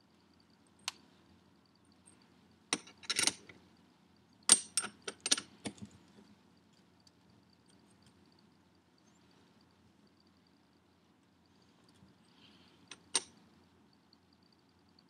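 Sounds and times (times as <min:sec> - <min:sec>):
wrench clinking on metal nut: 0:02.8 - 0:03.5, 0:04.5 - 0:05.8.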